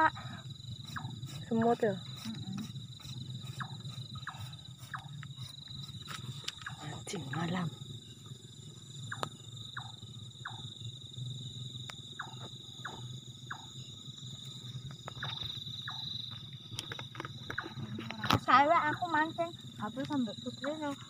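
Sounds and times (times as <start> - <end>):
crickets trilling: 0.0 - 21.0.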